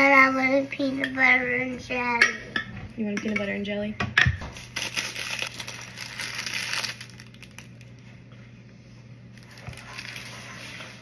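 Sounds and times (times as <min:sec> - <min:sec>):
plastic wrapper crinkling and tearing: 0:04.5 - 0:08.1, 0:09.3 - 0:11.0.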